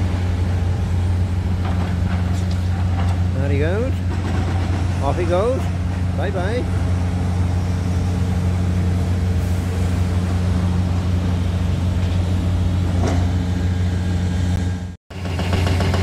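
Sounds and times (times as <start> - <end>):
heavy diesel engines droning: 0.0 - 16.0.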